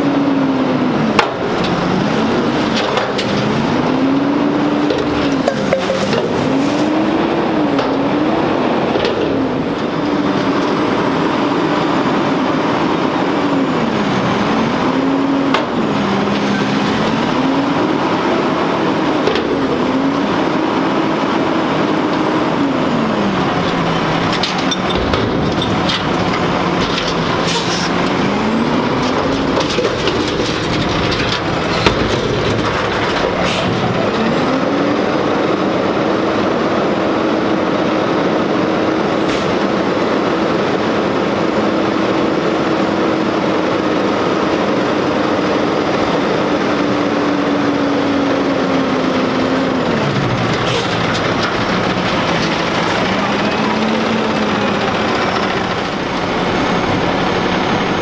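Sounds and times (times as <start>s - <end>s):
diesel engine revving: 0.0s - 58.0s.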